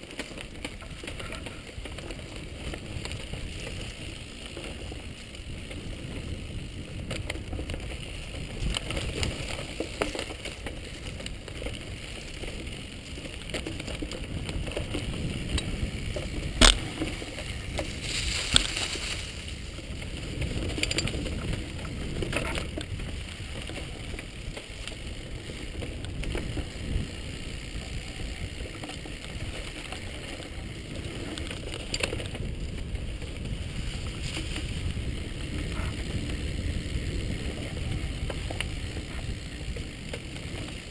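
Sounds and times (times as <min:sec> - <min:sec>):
bicycle rumbling and rattling: 0:00.0 - 0:40.9
small clicks and knocks: 0:13.3 - 0:19.2, 0:20.6 - 0:23.0.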